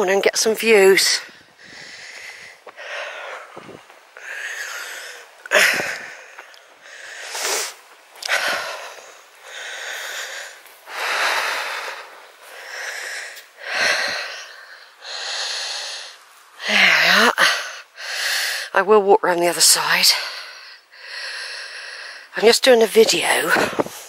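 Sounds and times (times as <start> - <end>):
heavy breathing: 1.0 - 18.8, 20.1 - 22.4.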